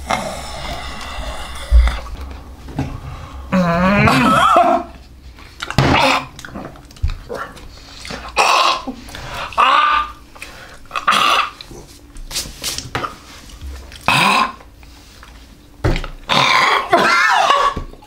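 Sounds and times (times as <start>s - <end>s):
man gagging and retching: 3.5s - 5.0s, 5.7s - 6.8s, 8.3s - 10.2s, 10.9s - 11.7s, 14.0s - 14.6s
man coughing: 4.0s - 4.9s.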